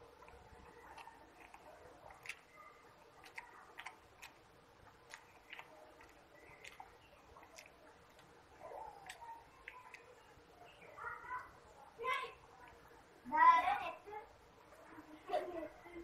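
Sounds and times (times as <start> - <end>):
man chewing with mouth clicks: 0.0 - 10.3.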